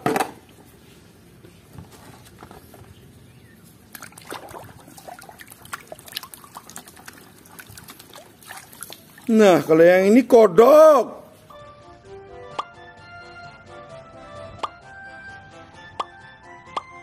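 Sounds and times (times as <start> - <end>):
water dripping: 3.8 - 9.7
hand splashing in water: 3.9 - 9.7.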